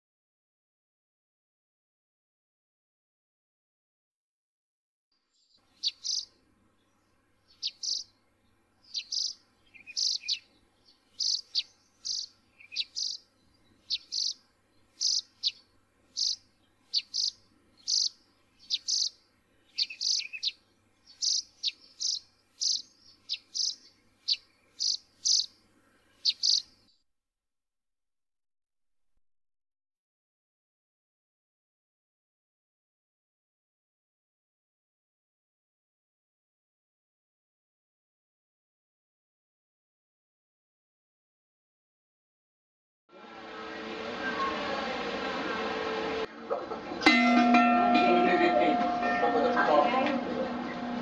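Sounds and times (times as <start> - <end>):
bird chirping: 5.3 - 27.0.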